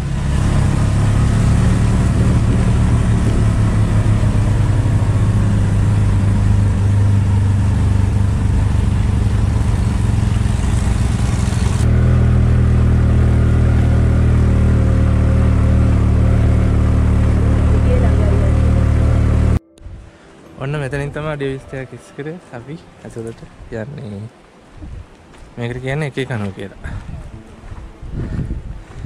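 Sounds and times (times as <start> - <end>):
auto-rickshaw engine running: 0.0 - 19.6.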